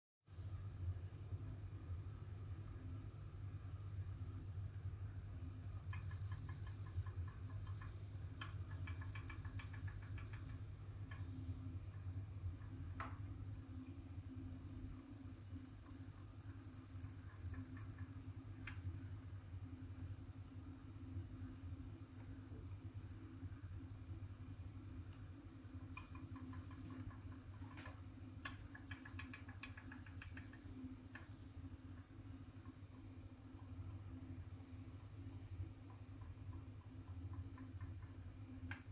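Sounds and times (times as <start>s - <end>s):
low steady hum: 0.3s - 38.9s
clock mechanism ticking: 5.4s - 13.2s, 13.9s - 19.3s.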